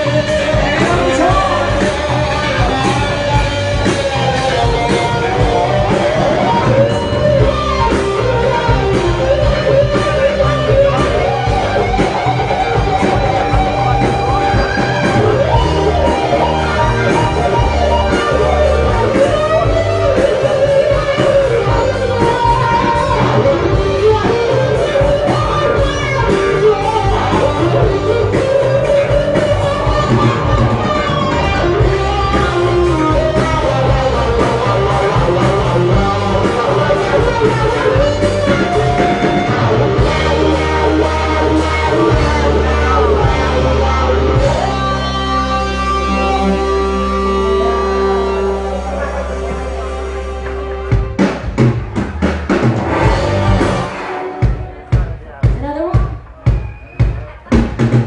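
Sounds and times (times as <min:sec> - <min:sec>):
person singing: 0:00.0 - 0:03.1
electric guitar: 0:00.0 - 0:58.0
live rock band: 0:00.0 - 0:58.0.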